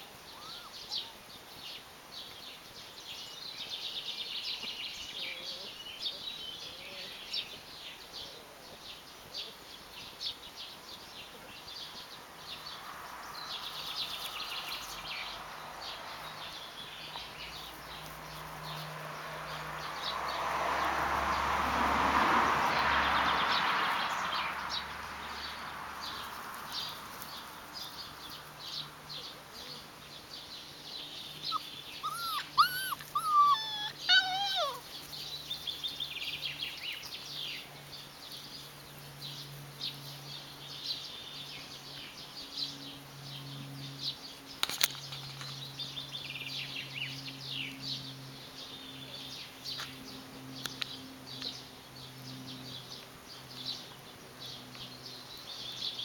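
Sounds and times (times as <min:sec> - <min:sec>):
birds chirping: 0:00.0 - 0:21.5, 0:22.7 - 0:56.0
puppies squealing and whimpering: 0:00.3 - 0:01.1, 0:31.4 - 0:34.9.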